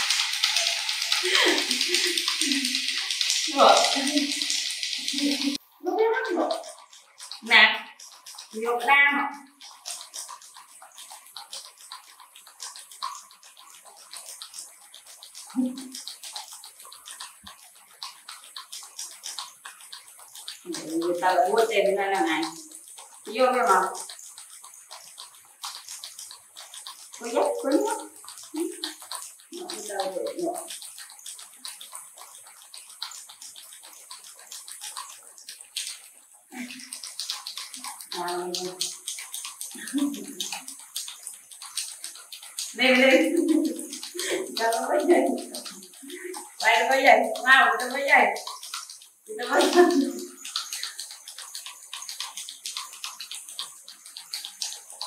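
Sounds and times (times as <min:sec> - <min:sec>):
toy mechanism clicking and rattling: 0:00.0 - 0:05.6
toy motor and gears rattling: 0:00.0 - 0:55.0.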